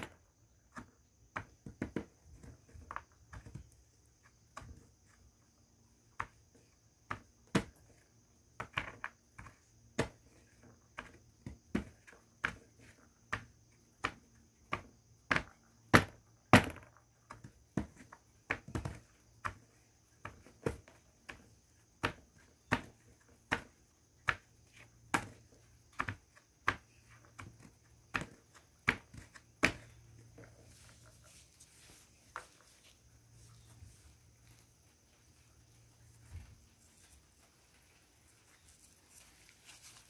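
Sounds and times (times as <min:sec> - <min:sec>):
faint grinding of powder: 0:00.0 - 0:40.0
glass bottle pounding mothballs: 0:13.2 - 0:30.3.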